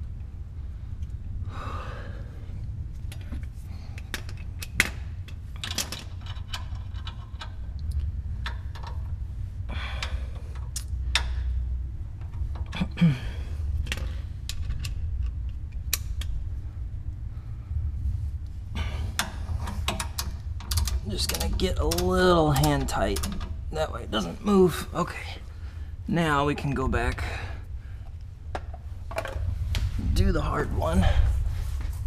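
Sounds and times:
steady low hum: 0.0 - 32.0
hardware clicks and knocks: 19.1 - 23.6.

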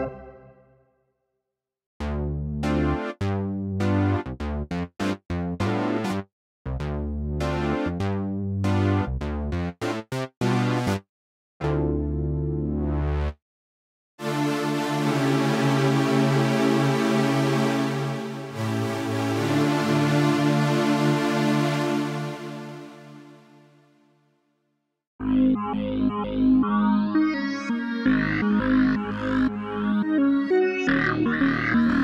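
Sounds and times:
sustained synthesizer chord: 0.0 - 0.7, 14.2 - 23.2, 25.2 - 32.0
heavy synth bass: 2.0 - 4.6, 25.2 - 32.0
synth chords and stabs: 25.3 - 32.0.

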